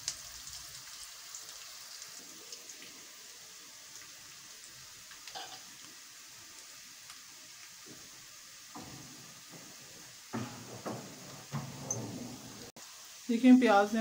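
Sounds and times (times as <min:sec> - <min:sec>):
onions sizzling in hot oil: 0:00.0 - 0:14.0
small crackles: 0:03.9 - 0:08.2.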